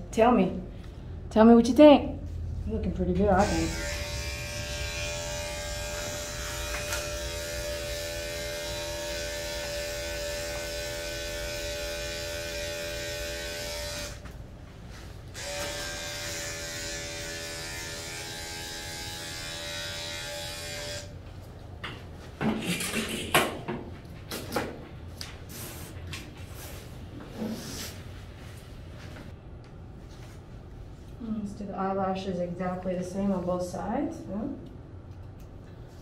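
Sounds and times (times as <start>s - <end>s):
electric clipper humming: 3.3s - 14.3s, 15.3s - 21.2s.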